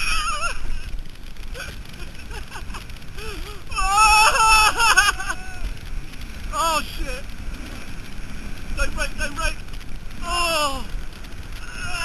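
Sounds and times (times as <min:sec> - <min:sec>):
wind and sled track noise: 0:00.0 - 0:12.0.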